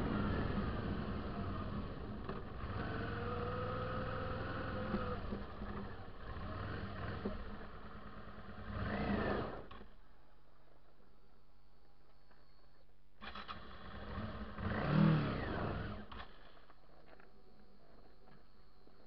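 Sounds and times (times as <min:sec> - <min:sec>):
motorcycle engine revving: 0:00.0 - 0:10.0, 0:13.2 - 0:16.5.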